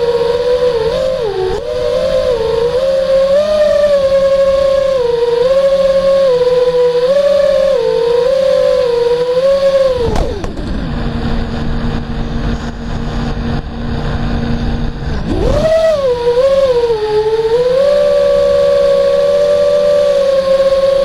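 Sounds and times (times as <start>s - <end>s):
quadcopter motors whining: 0.0s - 21.0s.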